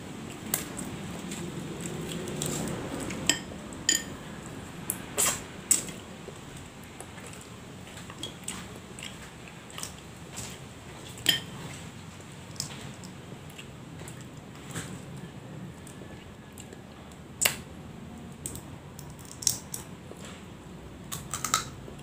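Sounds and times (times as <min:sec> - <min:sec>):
crab shell cracking by hand: 0:18.3 - 0:19.9, 0:21.1 - 0:21.8.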